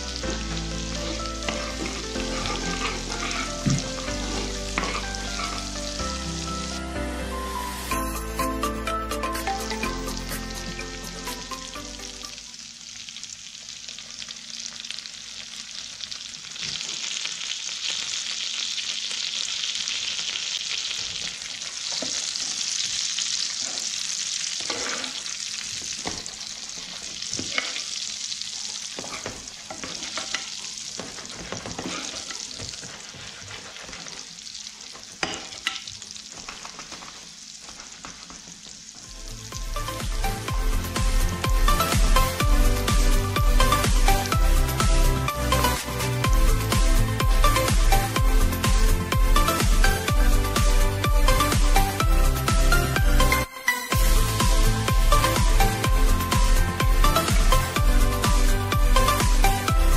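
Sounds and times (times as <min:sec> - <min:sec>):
sauce sizzling in frying pan: 0:00.0 - 0:59.9
metal spoon scraping pan: 0:01.4 - 0:05.7, 0:24.6 - 0:25.2, 0:29.0 - 0:34.1.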